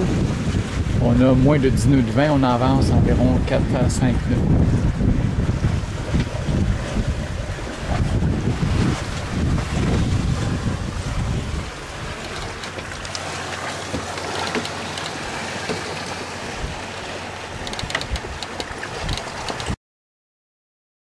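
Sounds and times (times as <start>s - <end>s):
water rushing along boat hull: 0.0s - 19.8s
wind buffeting microphone: 0.0s - 19.8s
small splashes: 6.1s - 19.7s.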